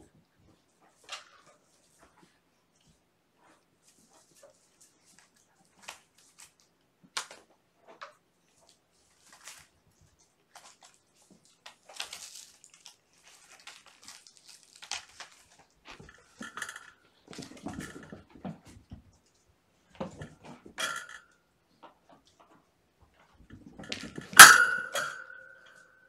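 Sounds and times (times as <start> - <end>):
rustles and small knocks: 0.0 - 25.9
paws scratching on cardboard: 0.5 - 6.7.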